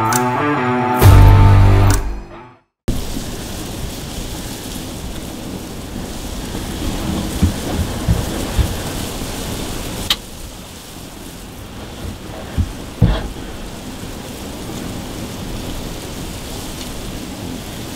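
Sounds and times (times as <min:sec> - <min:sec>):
sharp click: 0:00.0 - 0:00.3, 0:01.1 - 0:02.2
low thumps: 0:01.0 - 0:02.4, 0:06.6 - 0:09.1, 0:12.0 - 0:13.4
wind buffeting microphone: 0:02.9 - 0:17.9.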